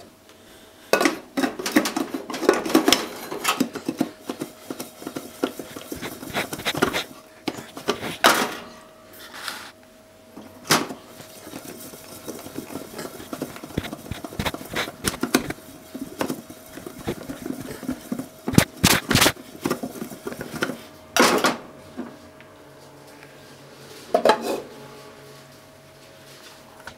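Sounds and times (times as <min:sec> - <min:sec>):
faint steady hum: 0:00.0 - 0:26.9
potatoes tumbling in shaken pot: 0:01.0 - 0:08.4, 0:10.5 - 0:20.8.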